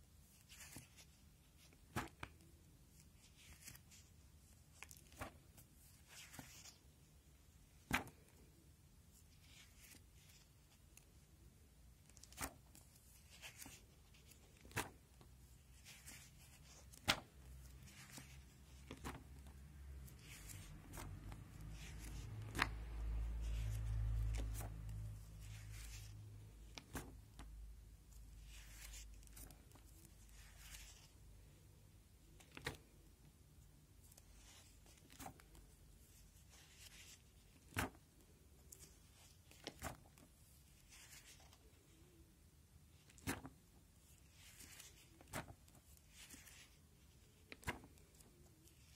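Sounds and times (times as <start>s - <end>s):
plastic sheets rustling: 0.3s - 6.8s, 12.0s - 27.5s.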